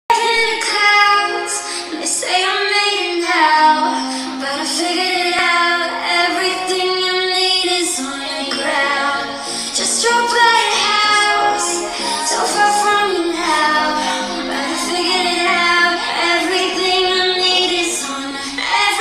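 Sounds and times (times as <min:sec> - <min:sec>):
pop backing music: 0:00.1 - 0:19.0
woman singing into a microphone: 0:00.1 - 0:19.0.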